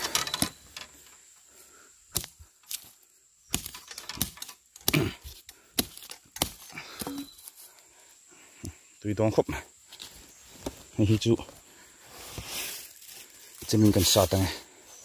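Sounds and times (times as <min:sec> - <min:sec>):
knife chopping bamboo shoot: 0:03.5 - 0:07.2.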